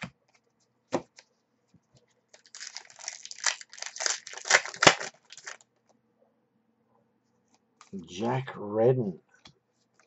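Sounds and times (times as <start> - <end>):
foil wrapper crinkling: 2.4 - 5.6.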